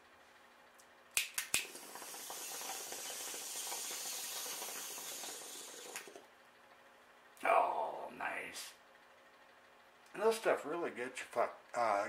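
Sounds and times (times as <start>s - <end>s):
steady hiss: 1.9s - 6.1s.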